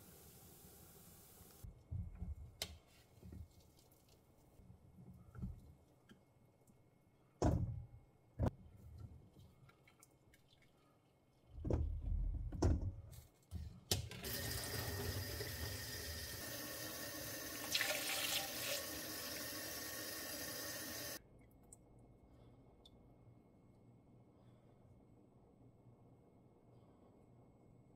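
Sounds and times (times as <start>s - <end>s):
kitchen tap running water: 14.2s - 21.2s.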